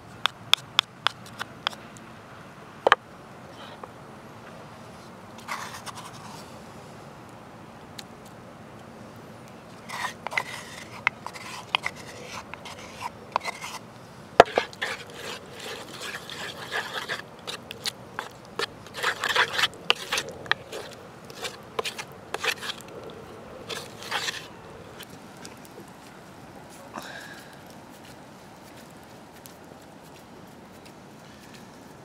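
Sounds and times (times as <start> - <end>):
wooden spoon scraping a dish: 9.8 - 23.0, 23.6 - 25.1.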